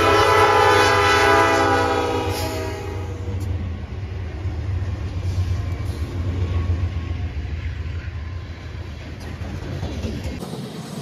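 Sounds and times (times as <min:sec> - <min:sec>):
diesel locomotives rumbling: 0:00.0 - 0:11.0
freight cars rolling on rails: 0:02.3 - 0:11.0.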